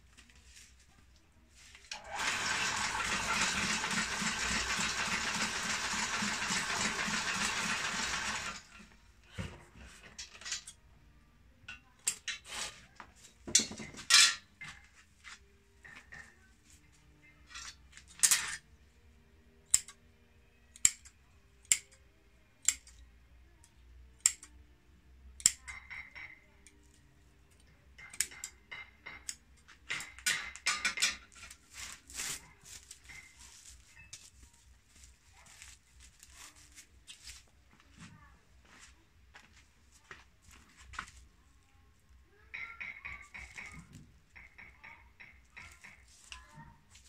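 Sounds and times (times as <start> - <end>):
broom-binding machine running: 1.9 - 8.8
scissors snipping straw: 19.7 - 20.0, 20.8 - 21.9, 24.2 - 24.5.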